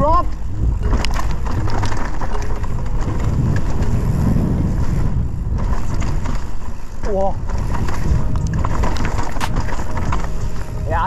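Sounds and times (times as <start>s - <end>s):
mountain bike rumbling and rattling: 0.0s - 11.0s
tyres on dirt and leaves: 0.0s - 11.0s
wind buffeting microphone: 0.0s - 11.0s.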